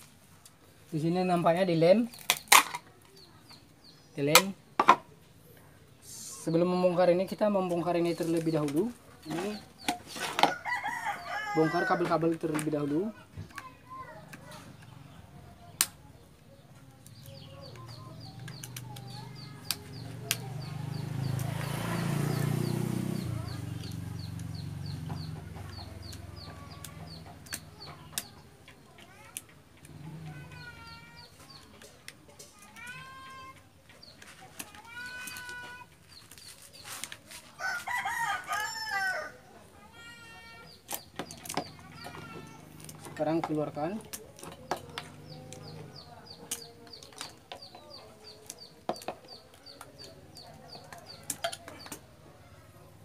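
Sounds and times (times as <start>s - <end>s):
rooster crowing: 10.4s - 12.1s, 37.6s - 39.5s
sharp clicks: 17.0s - 20.4s.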